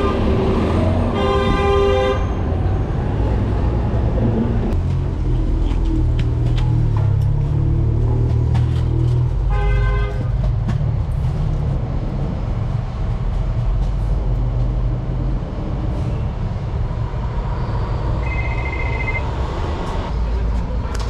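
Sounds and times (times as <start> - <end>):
passing vehicles: 0.0 - 21.0
car horn toot: 1.2 - 2.3, 18.2 - 19.2
high steady beep: 18.2 - 19.3.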